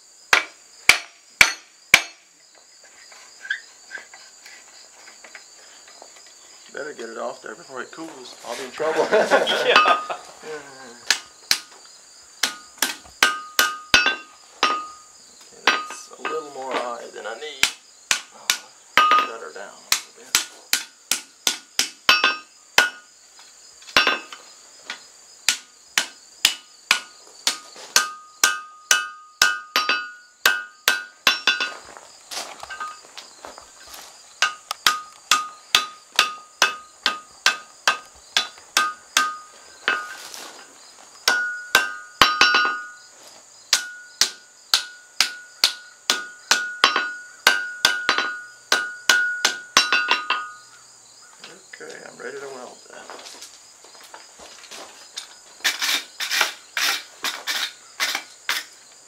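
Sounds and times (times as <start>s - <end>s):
high insect drone: 0.0s - 59.0s
hammer striking steel on anvil: 0.3s - 2.2s, 12.4s - 16.4s, 17.6s - 23.1s, 24.0s - 24.4s, 25.5s - 31.7s, 34.4s - 40.2s, 41.2s - 43.0s, 43.7s - 50.6s.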